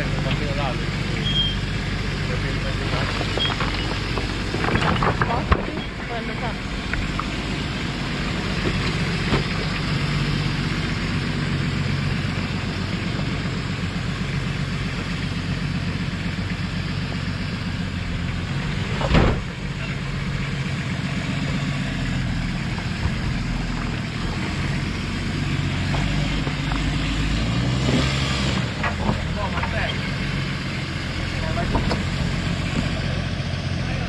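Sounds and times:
car engine running: 0.0s - 34.0s
sudden thump: 19.0s - 19.5s.

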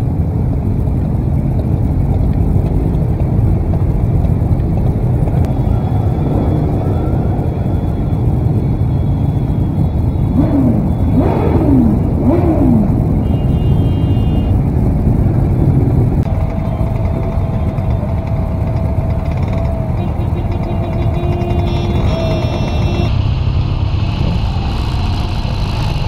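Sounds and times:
wind noise: 0.0s - 20.2s
motorcycle engines rumbling: 0.0s - 26.0s
motorcycle revs: 1.6s - 26.0s.

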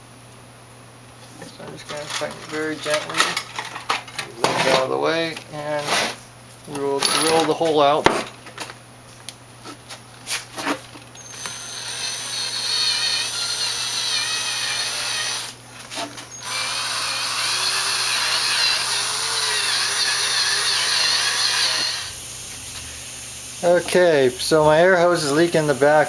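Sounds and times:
cordless drill boring through metal: 11.2s - 15.6s, 16.3s - 22.2s.

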